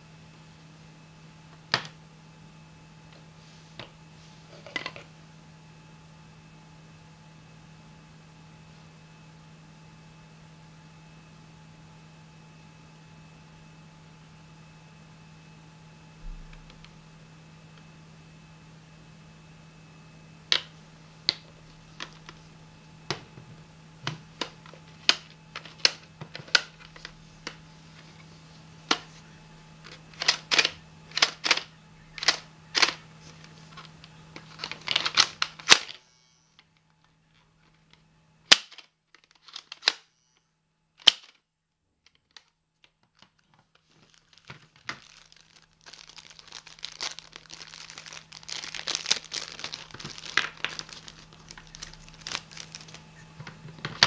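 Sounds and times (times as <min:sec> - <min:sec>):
plastic packet crinkling: 0:43.1 - 0:54.0.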